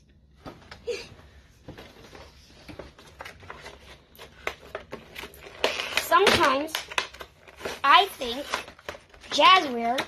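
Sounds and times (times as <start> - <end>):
packaging clicks taps and rustles: 2.7 - 10.0.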